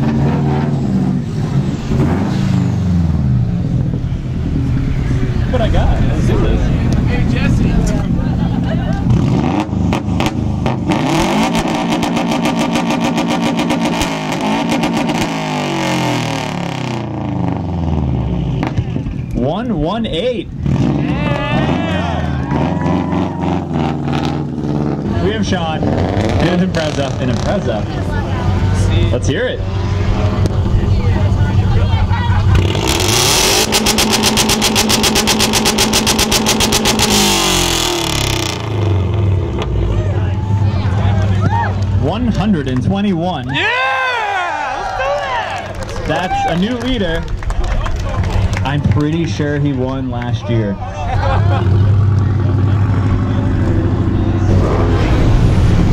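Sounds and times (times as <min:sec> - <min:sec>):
car engine revving hard: 0:09.0 - 0:18.8, 0:20.6 - 0:31.4, 0:32.4 - 0:40.0, 0:51.5 - 0:55.9
exhaust pops: 0:30.3 - 0:30.8, 0:32.4 - 0:39.9.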